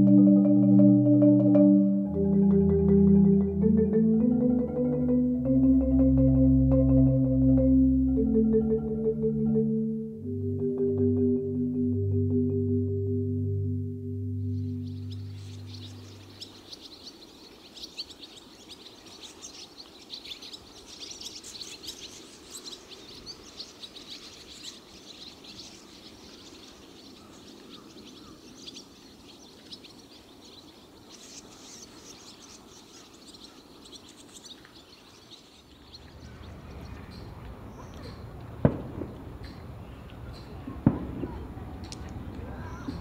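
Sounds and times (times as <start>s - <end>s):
swallows twittering: 14.4s - 38.3s, 41.8s - 43.0s.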